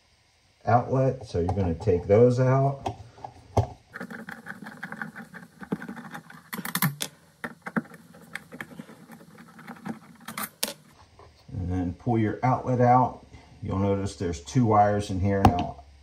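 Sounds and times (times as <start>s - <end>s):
screwdriver clicks and metal scrapes: 3.9s - 11.0s.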